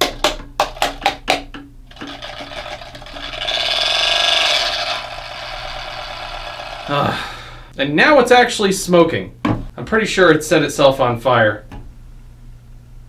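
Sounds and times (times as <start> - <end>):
small fan motor whirring: 1.9 - 7.7.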